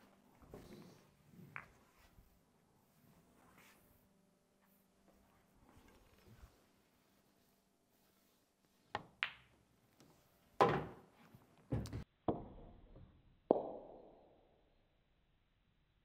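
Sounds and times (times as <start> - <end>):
pool balls clacking: 9.0 - 9.7
cue tip striking ball: 13.5 - 14.1.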